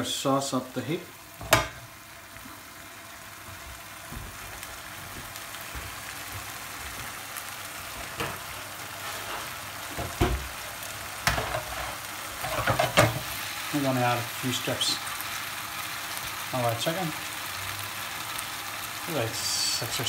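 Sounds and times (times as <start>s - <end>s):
sauce sizzling in a frying pan: 0.0s - 20.0s.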